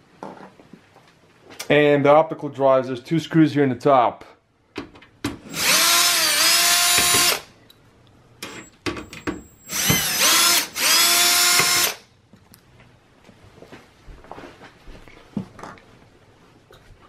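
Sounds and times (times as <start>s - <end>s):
electric screwdriver whine: 5.5s - 7.5s, 8.4s - 12.0s.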